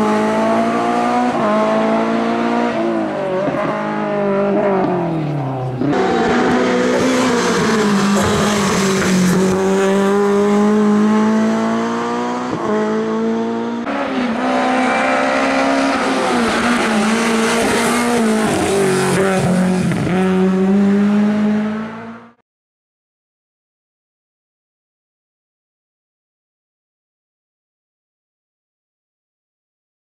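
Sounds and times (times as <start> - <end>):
race car engine at high revs: 0.0 - 22.4.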